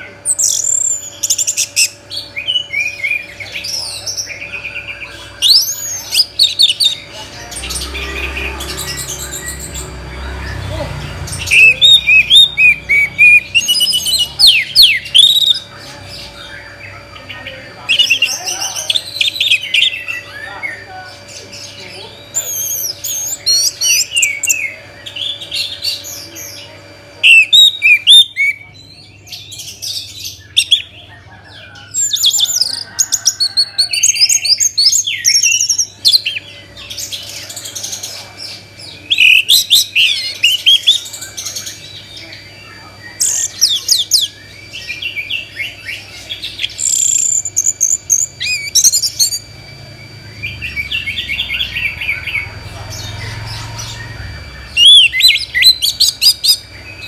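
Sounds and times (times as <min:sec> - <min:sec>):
thrush singing: 0:01.0 - 0:29.2.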